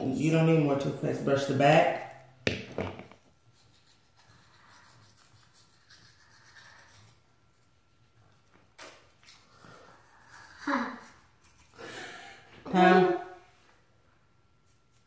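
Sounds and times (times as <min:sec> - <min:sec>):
toothbrush scrubbing teeth: 0:03.3 - 0:11.9.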